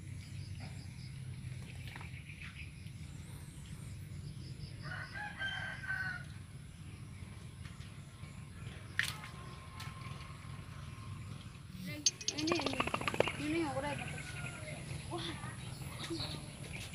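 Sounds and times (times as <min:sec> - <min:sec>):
drawn-out bird call: 0:11.9 - 0:14.8.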